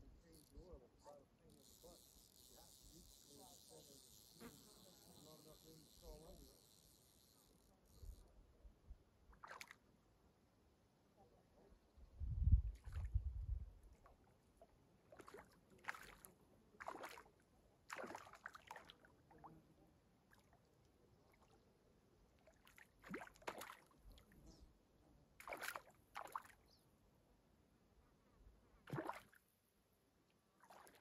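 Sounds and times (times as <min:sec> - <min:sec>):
faint water splashes: 0:09.3 - 0:09.9, 0:12.7 - 0:13.2, 0:13.8 - 0:24.6, 0:25.3 - 0:26.8, 0:28.8 - 0:29.4, 0:30.6 - 0:31.0.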